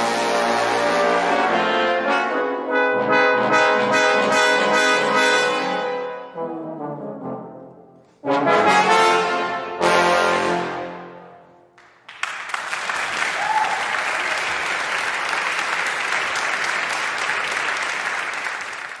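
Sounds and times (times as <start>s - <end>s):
trombone ensemble chord: 0.0s - 11.5s
audience applause: 11.8s - 19.0s.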